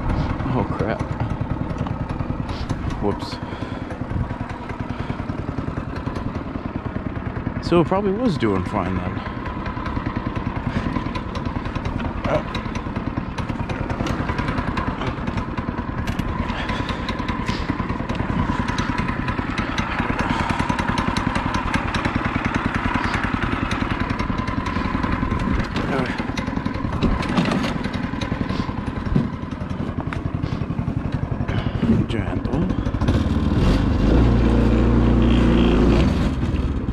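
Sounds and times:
go-kart engine running: 0:00.0 - 0:36.9
frame knocks and rattles: 0:25.3 - 0:28.0.

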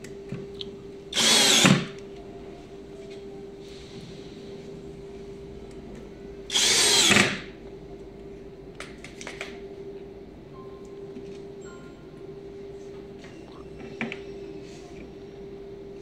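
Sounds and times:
steady hum: 0:00.0 - 0:16.0
power drill driving a screw: 0:01.2 - 0:01.9, 0:06.5 - 0:07.4.

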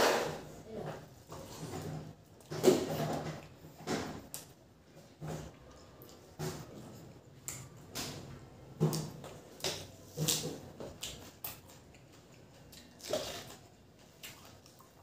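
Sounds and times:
man chewing food: 0:01.1 - 0:15.0.

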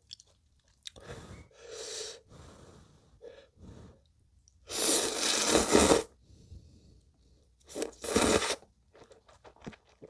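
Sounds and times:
quiet breaths: 0:00.9 - 0:04.3, 0:06.1 - 0:07.7.

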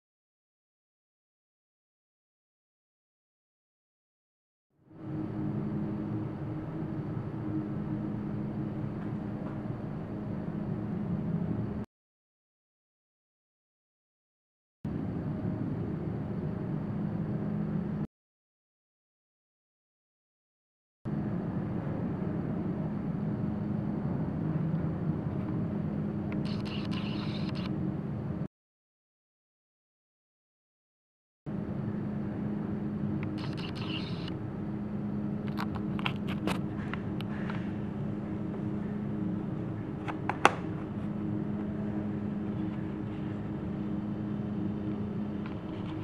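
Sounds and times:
low hum and hiss: 0:04.8 - 0:11.8, 0:14.9 - 0:18.1, 0:21.1 - 0:28.5, 0:31.5 - 0:46.0.

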